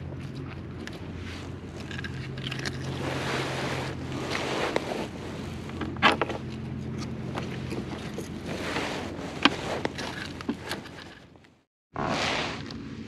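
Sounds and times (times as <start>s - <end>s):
knocks and rustles in kayak: 2.8s - 11.4s.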